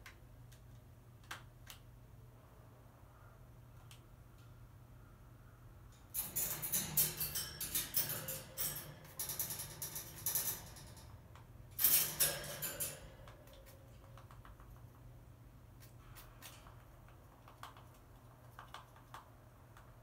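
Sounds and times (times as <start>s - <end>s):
crow clicking and tapping: 13.2s - 15.1s, 15.8s - 20.0s.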